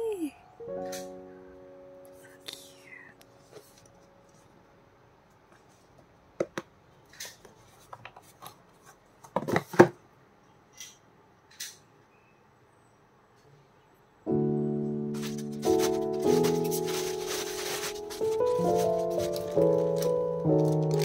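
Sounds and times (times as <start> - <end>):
background music: 0.0 - 3.5, 14.3 - 21.0
packaging clicks and crinkles: 15.2 - 21.0
packet rustling: 15.2 - 21.0.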